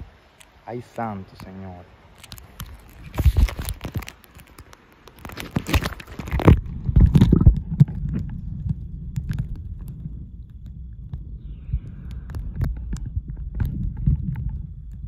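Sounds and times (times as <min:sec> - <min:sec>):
muffled underwater rumble: 0:06.1 - 0:15.0.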